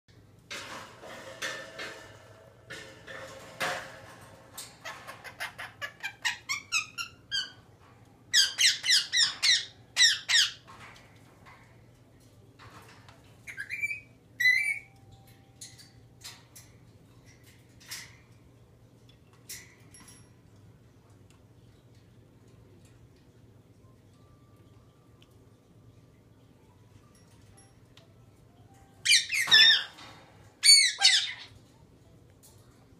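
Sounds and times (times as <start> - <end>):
cockatoo squawking: 30.6 - 31.5.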